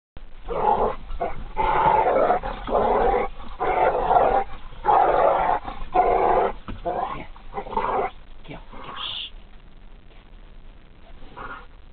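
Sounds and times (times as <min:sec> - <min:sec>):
dogs growling: 0:00.4 - 0:09.2, 0:11.1 - 0:11.8.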